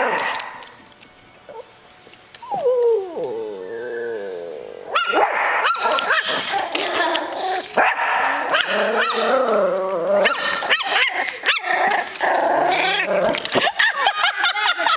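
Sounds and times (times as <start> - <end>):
dogs play growling: 2.4 - 14.6
puppy yipping: 4.9 - 6.5, 8.5 - 9.3.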